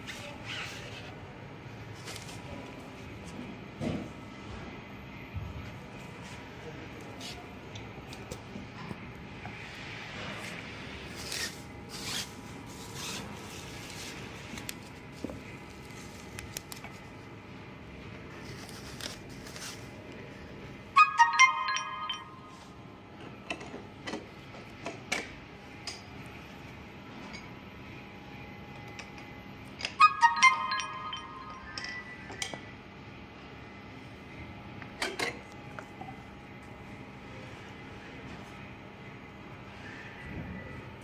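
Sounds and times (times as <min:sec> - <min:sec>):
bubble wrap rustling: 0:18.3 - 0:20.0
ringing chime: 0:21.0 - 0:22.8, 0:30.0 - 0:32.4.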